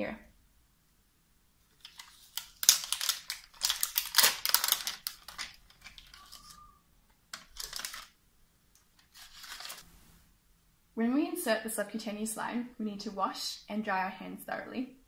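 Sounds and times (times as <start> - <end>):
paper and plastic wrappers crinkling: 1.7 - 8.2, 8.9 - 9.9.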